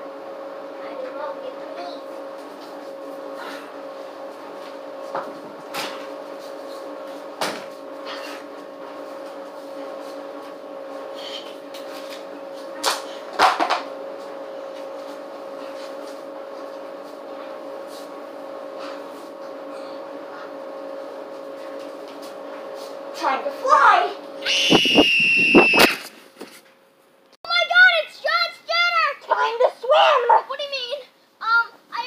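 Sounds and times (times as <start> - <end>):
steady hum: 22.3 - 26.4.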